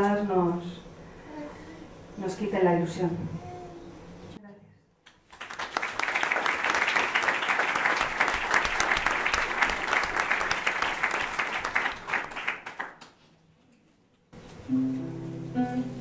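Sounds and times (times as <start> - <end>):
audience applauding: 5.3 - 13.1.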